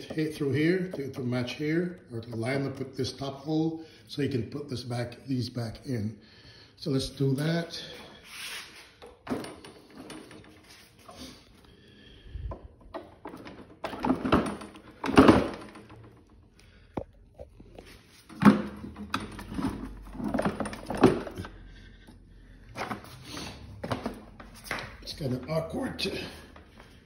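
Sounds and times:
lawnmower handle knocks and clunks: 0:12.9 - 0:15.9.

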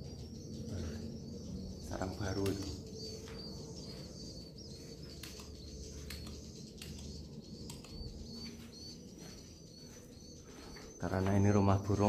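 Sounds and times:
swiftlets twittering: 0:00.0 - 0:12.0
sharp clicks: 0:05.1 - 0:08.4.

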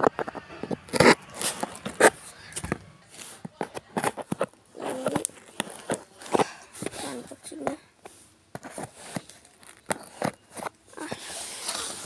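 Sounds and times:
tape and cardboard rustling: 0:00.0 - 0:12.0.

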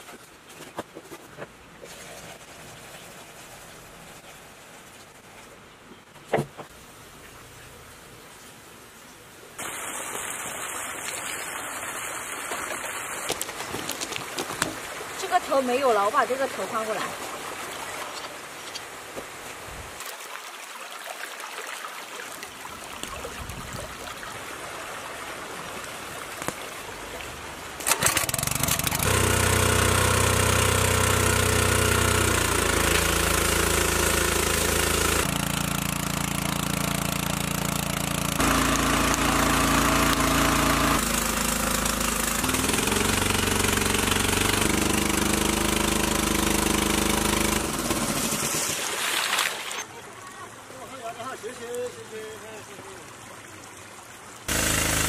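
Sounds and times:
water pump petrol engine running: 0:27.8 - 0:48.9, 0:54.5 - 0:55.0.

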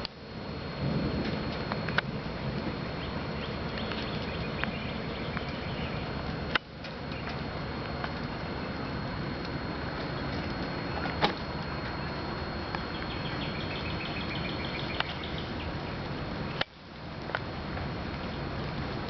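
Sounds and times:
bird chirping: 0:03.0 - 0:06.2, 0:12.8 - 0:16.6.

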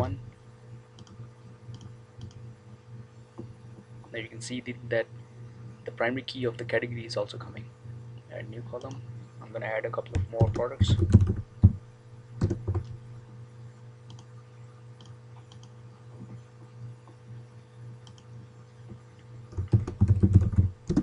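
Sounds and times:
keyboard typing: 0:10.1 - 0:11.8, 0:12.4 - 0:13.0, 0:19.5 - 0:21.0.

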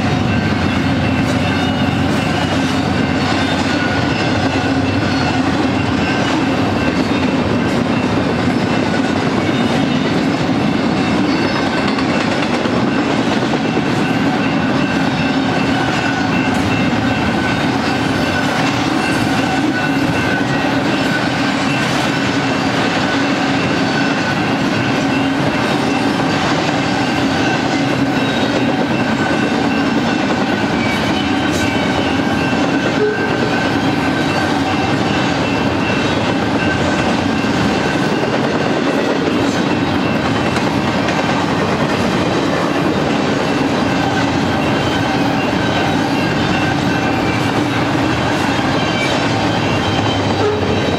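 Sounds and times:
train wheels rumbling on rail: 0:00.0 - 0:50.9.

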